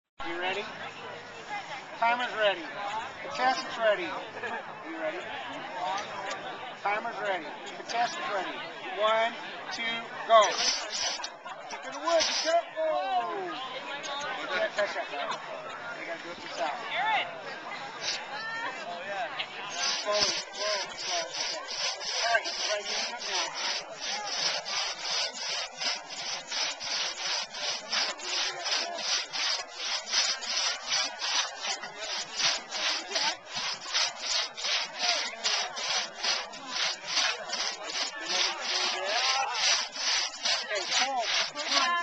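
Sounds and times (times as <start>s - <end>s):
crosscut saw cutting log: 9.8s - 12.7s, 19.7s - 42.0s.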